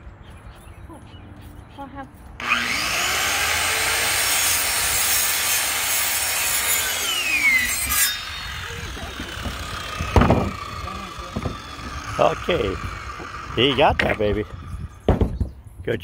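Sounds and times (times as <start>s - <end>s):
saw blade winding down: 2.4s - 15.0s
circular saw cutting board: 2.4s - 15.1s.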